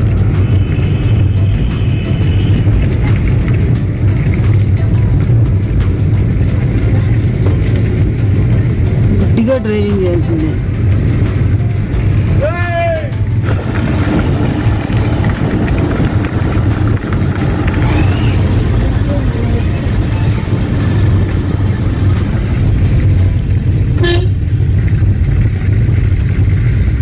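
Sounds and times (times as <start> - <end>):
car engine rumble and road noise: 0.0 - 27.0
car horn toot: 0.3 - 2.8, 24.0 - 24.4.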